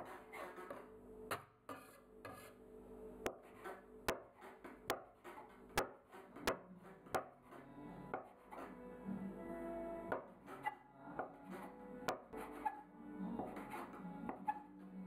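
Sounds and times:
metal scraper knocking on wood: 0:03.3 - 0:08.7.

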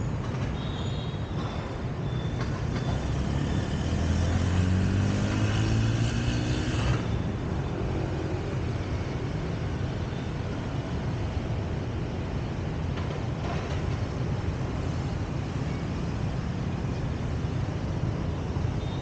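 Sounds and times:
road traffic: 0:00.0 - 0:19.0
vehicle passing by: 0:03.1 - 0:07.1.

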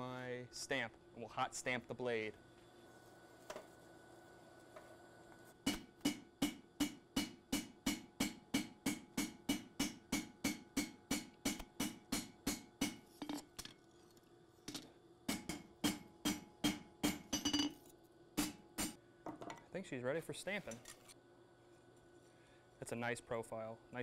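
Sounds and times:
hammer striking metal on anvil: 0:05.7 - 0:13.0, 0:15.3 - 0:17.8, 0:18.4 - 0:19.0.

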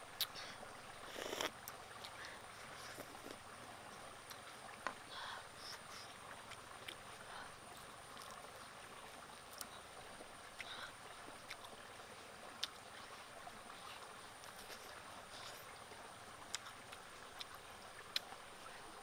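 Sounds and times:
faint stream rushing: 0:00.0 - 0:19.0
person chewing food: 0:16.5 - 0:16.8.

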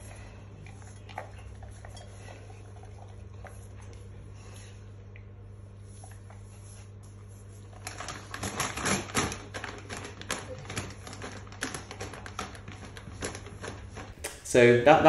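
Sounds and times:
paper bag crackling: 0:07.6 - 0:14.2
dry kibble rattling: 0:07.7 - 0:14.2.

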